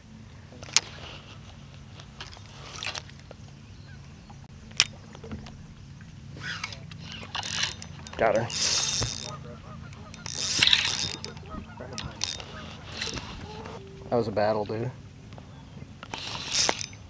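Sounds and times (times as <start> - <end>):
small knocks and rustles: 4.3 - 13.8.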